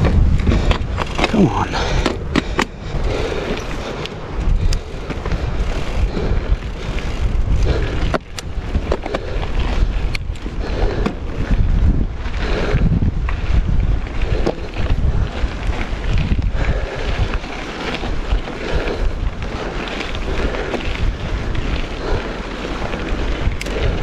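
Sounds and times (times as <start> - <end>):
bike tyre rumble on dirt: 0.0 - 24.0
wind buffeting microphone: 0.0 - 24.0
wheels knocking on stones: 13.2 - 16.5.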